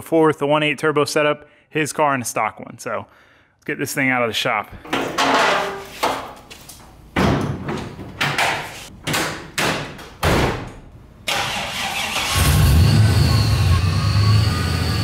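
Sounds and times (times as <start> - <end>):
car hood and door slamming: 9.1 - 10.7
starter cranking engine: 11.3 - 12.8.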